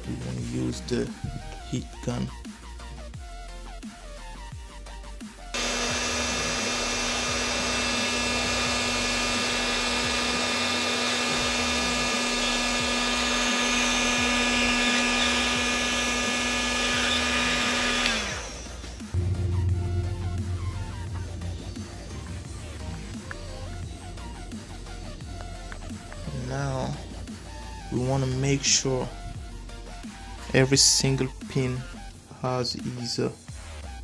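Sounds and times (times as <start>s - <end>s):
heat gun switch: 5.6s - 19.1s
heat gun fan whine: 5.6s - 21.9s.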